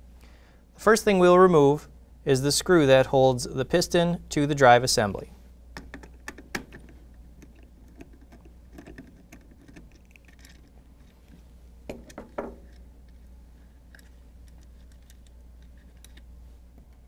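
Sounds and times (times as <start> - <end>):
low steady hum: 0.0 - 17.0
screwdriver clicking and scraping plastic: 5.8 - 11.2, 13.9 - 16.3.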